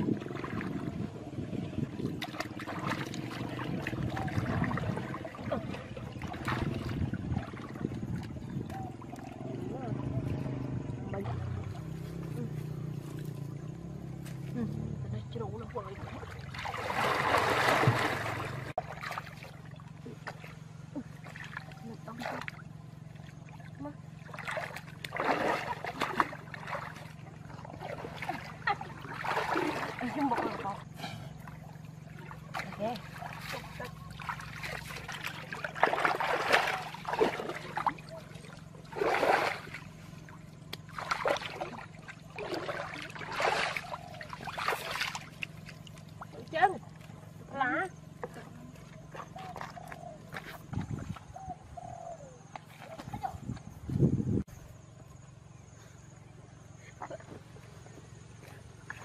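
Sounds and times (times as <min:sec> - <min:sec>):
low hum: 0:00.0 - 0:59.0
water sloshing around wading person: 0:00.0 - 0:59.0.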